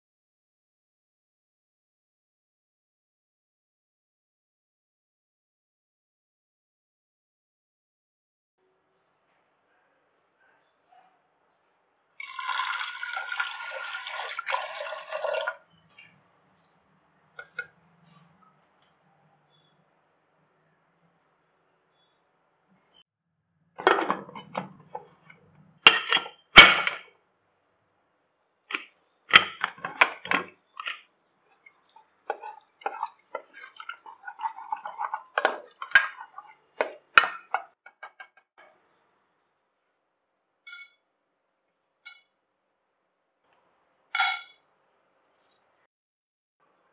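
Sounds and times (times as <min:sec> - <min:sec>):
water pouring into pot: 0:12.2 - 0:15.6, 0:31.6 - 0:37.3.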